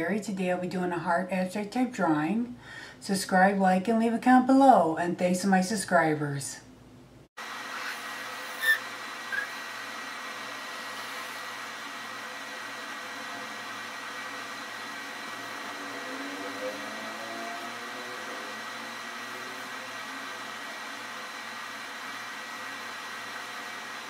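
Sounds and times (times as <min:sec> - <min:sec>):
faint high whine: 0:07.4 - 0:24.0.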